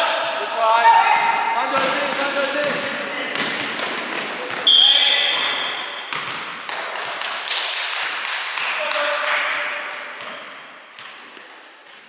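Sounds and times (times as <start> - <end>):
basketball bouncing on court: 0.2 - 4.7, 5.3 - 7.6.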